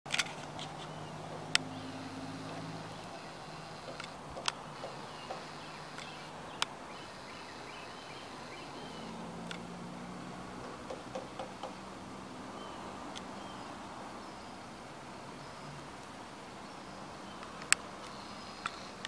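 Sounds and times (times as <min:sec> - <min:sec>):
sharp clicks: 0:00.1 - 0:06.8
faint bird chirps: 0:00.6 - 0:09.5, 0:12.5 - 0:19.0.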